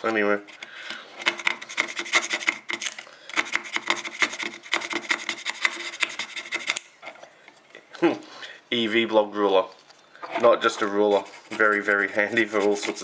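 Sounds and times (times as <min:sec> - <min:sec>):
rapid scraping: 0:10.3 - 0:13.0.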